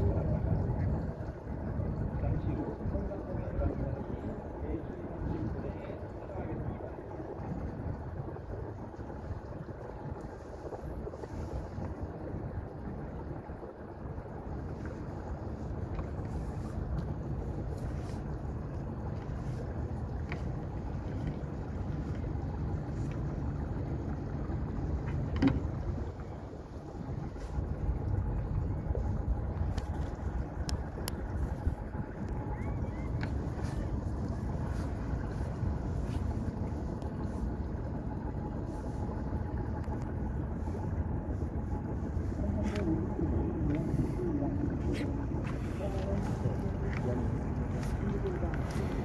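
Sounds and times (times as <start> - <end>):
boat noise on water: 0.0 - 49.0
motorboat engine rumbling: 0.0 - 49.0
wind buffeting microphone: 0.0 - 49.0
faint clicks: 29.6 - 34.0.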